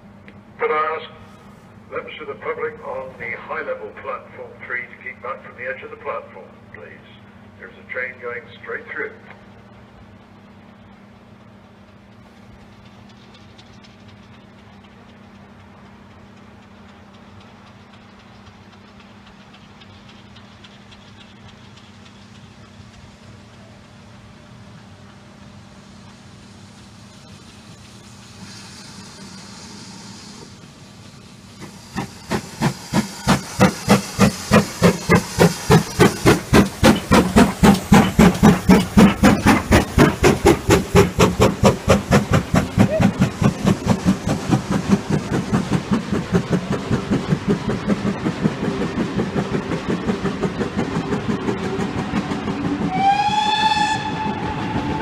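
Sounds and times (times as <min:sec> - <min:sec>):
steam locomotive exhaust chuffing: 0:00.0 - 0:55.0
steam whistle: 0:52.8 - 0:55.0.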